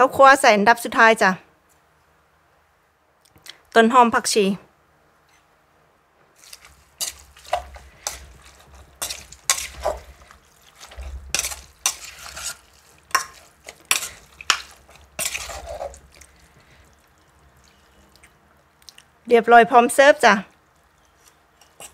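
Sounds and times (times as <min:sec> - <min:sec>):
wet rustling of food: 0:06.3 - 0:19.2, 0:20.5 - 0:21.9
utensil scraping a bowl: 0:06.4 - 0:17.0, 0:21.0 - 0:21.9.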